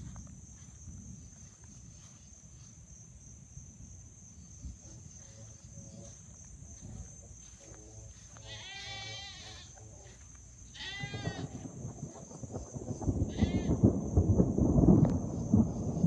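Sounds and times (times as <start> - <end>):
goats screaming: 8.4 - 9.8, 10.7 - 11.7, 13.3 - 13.8.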